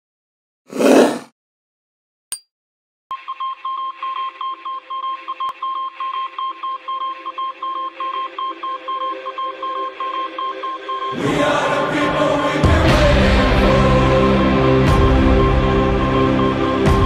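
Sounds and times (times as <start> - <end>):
loud music track: 11.2 - 17.0.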